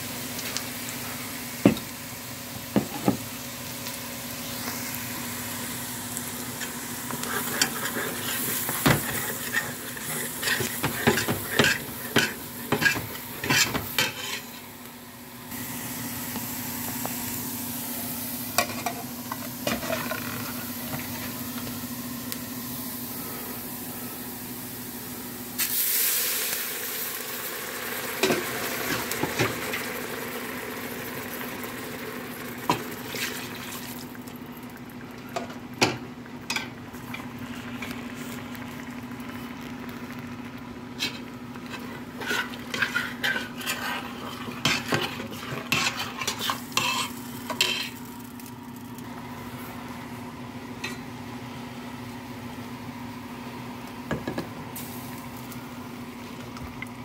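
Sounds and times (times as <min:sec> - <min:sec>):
broth sizzling in hot pan: 0:00.0 - 0:49.9, 0:53.9 - 0:56.6
onions sizzling in fat: 0:00.0 - 0:57.0
metal spoon scraping a pot: 0:42.2 - 0:48.0.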